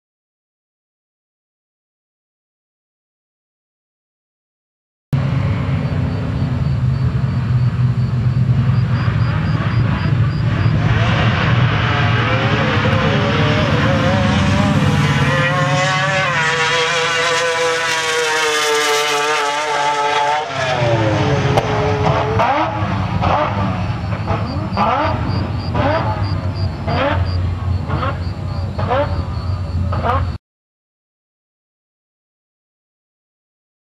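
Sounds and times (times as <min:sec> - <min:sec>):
rotary engine wailing: 0:05.2 - 0:30.4.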